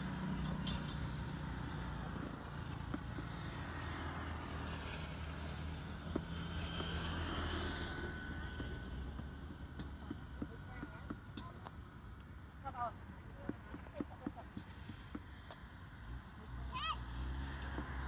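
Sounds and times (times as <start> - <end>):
motorbikes passing on wet road: 17.1 - 18.0.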